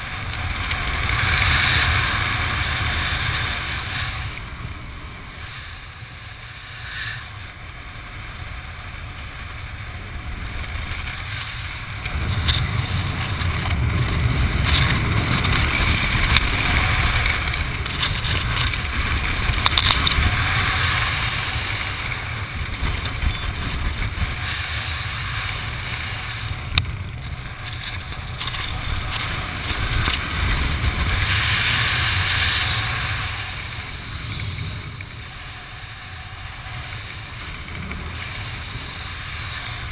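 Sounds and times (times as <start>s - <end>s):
wind rushing over microphone: 0.0s - 39.9s.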